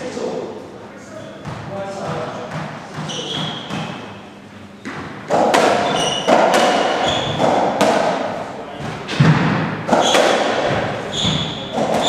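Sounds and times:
ball thudding in squash court: 0:01.4 - 0:04.2, 0:04.8 - 0:12.0
shoes squeaking on floor: 0:03.0 - 0:05.0, 0:05.8 - 0:07.5, 0:09.9 - 0:12.0.

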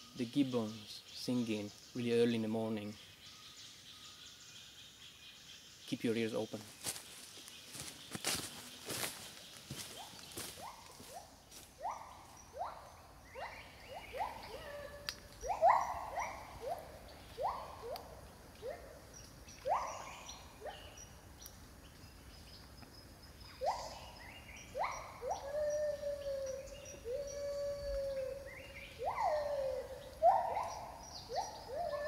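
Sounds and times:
long wavering hoots: 0:11.8 - 0:21.0, 0:23.6 - 0:32.0
gibbons whooping: 0:29.0 - 0:32.0.

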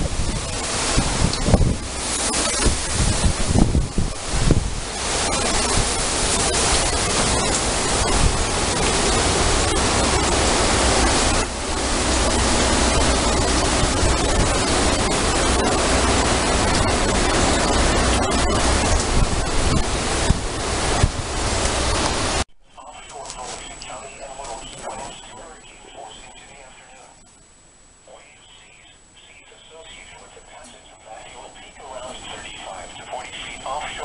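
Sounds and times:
wind buffeting microphone: 0:00.0 - 0:22.4
heavy rain: 0:00.0 - 0:27.2, 0:28.0 - 0:34.0
wind gusting through trees: 0:00.0 - 0:34.0.

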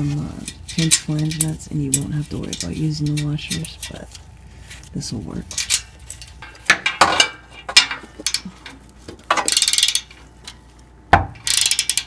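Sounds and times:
ratchet wrench clicking: 0:09.3 - 0:10.2, 0:11.4 - 0:12.0.

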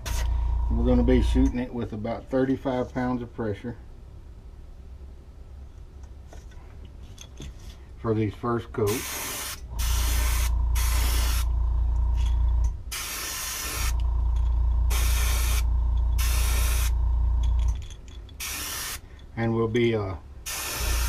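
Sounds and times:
airbrush spraying hiss: 0:00.0 - 0:00.3, 0:08.9 - 0:11.5, 0:12.9 - 0:14.0, 0:14.9 - 0:17.0, 0:18.4 - 0:19.0, 0:20.4 - 0:21.0
low drone: 0:00.0 - 0:01.8, 0:09.7 - 0:12.8, 0:13.8 - 0:17.8.

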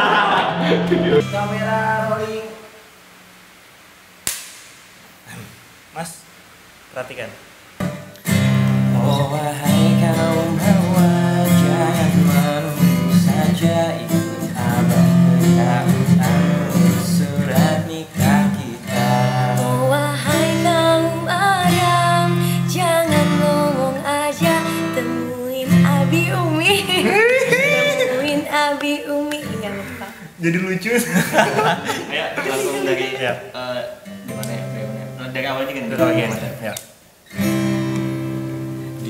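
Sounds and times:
acoustic guitar strumming chords: 0:00.0 - 0:02.6, 0:07.8 - 0:29.9, 0:34.0 - 0:36.7, 0:37.3 - 0:39.0
person singing: 0:00.0 - 0:02.8, 0:08.9 - 0:30.2.

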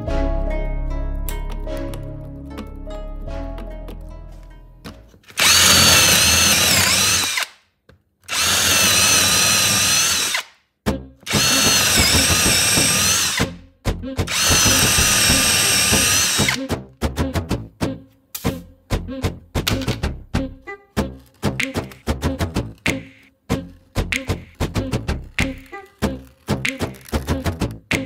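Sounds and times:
power drill boring into wood: 0:05.3 - 0:07.6, 0:08.3 - 0:10.5, 0:11.3 - 0:13.5, 0:14.3 - 0:16.6.

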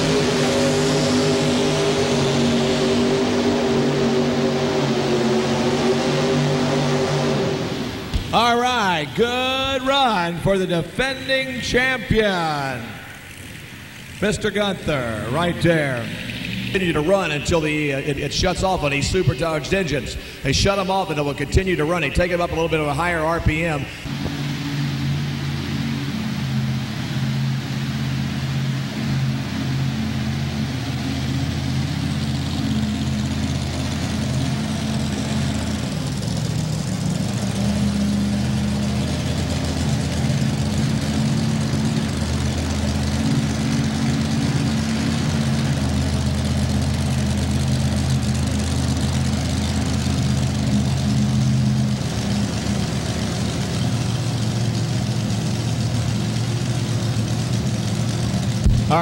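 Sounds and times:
engine idling: 0:00.0 - 0:59.0.

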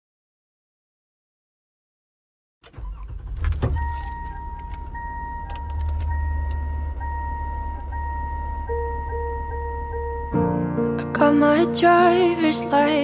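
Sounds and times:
car engine running: 0:02.7 - 0:10.8
keys jangling: 0:03.4 - 0:06.2
in-car warning chime: 0:03.4 - 0:10.7
clicks: 0:03.5 - 0:07.0.

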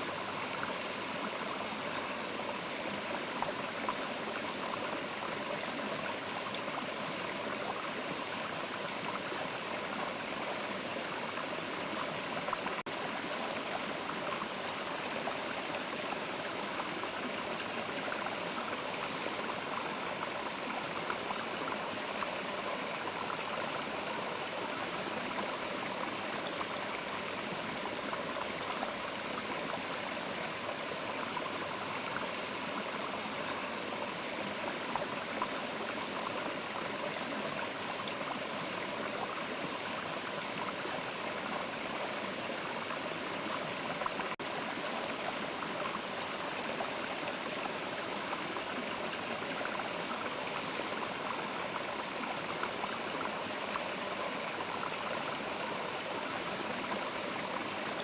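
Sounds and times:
river water rushing: 0:32.7 - 0:51.8
faint thin high-pitched sound: 0:33.4 - 0:47.9.

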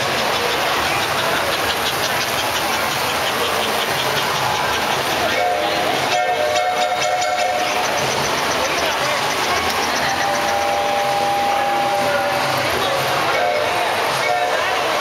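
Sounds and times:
crowd chatter: 0:00.0 - 0:15.0
model train wheels clattering: 0:00.0 - 0:15.0
toy train whistle: 0:05.3 - 0:09.2, 0:09.9 - 0:15.0.

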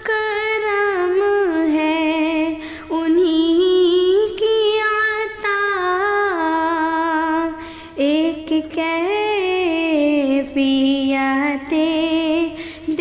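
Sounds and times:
woman singing unaccompanied: 0:00.0 - 0:13.0
breath: 0:02.6 - 0:02.9, 0:07.6 - 0:08.0, 0:12.5 - 0:12.9.

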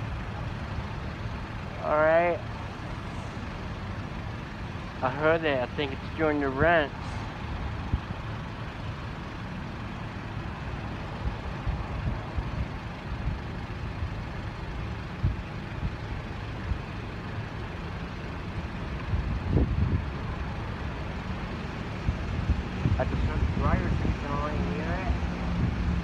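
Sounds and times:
low rumble of street traffic: 0:00.0 - 0:26.0.

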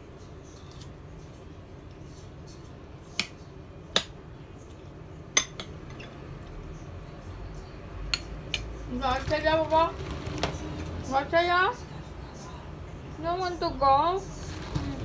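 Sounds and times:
utensils clinking on plate: 0:00.4 - 0:01.0.

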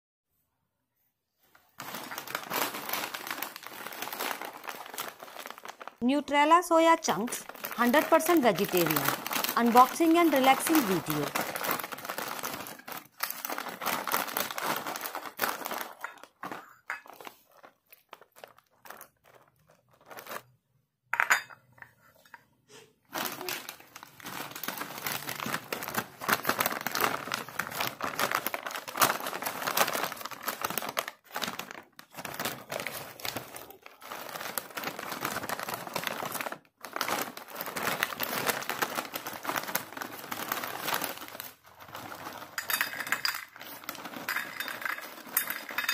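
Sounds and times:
plastic packet crinkling: 0:01.7 - 0:20.6, 0:23.1 - 0:45.9.

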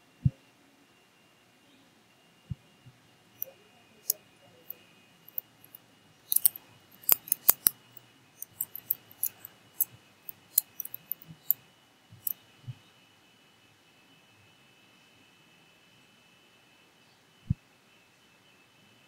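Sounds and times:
faint high whine: 0:00.0 - 0:19.0
keyboard typing: 0:06.3 - 0:11.6.

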